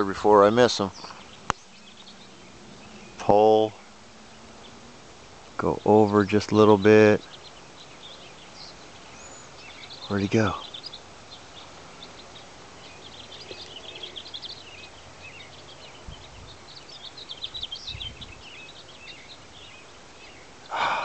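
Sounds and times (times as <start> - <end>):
small birds chirping: 0.0 - 21.0
wind buffeting microphone: 12.0 - 19.8.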